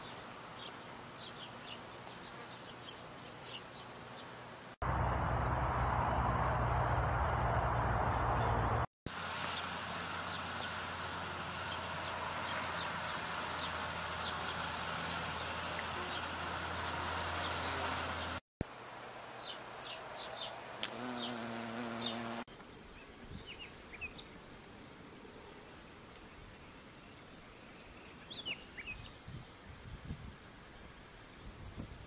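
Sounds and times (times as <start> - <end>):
birds chirping: 10.3 - 18.4, 19.4 - 24.6
bees buzzing: 20.8 - 22.5.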